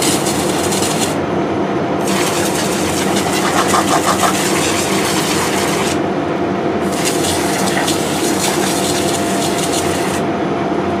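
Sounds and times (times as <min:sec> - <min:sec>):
fire hose water spraying: 0:02.0 - 0:06.0, 0:06.8 - 0:10.2.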